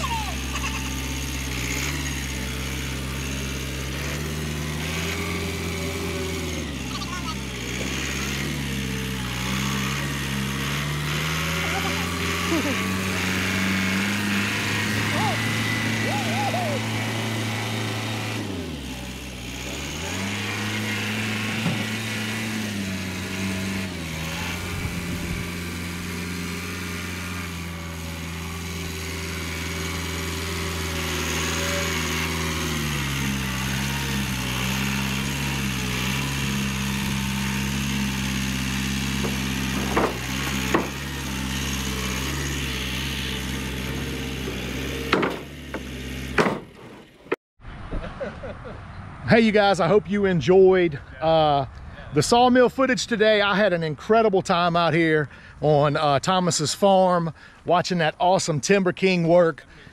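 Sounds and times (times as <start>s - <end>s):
tractor diesel engine running: 0.0s - 47.4s
sharp knocks: 39.2s - 41.0s, 44.4s - 47.4s.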